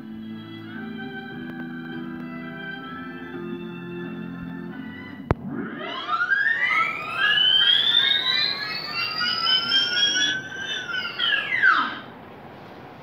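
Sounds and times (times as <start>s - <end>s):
siren-like rising tones: 4.8s - 12.1s.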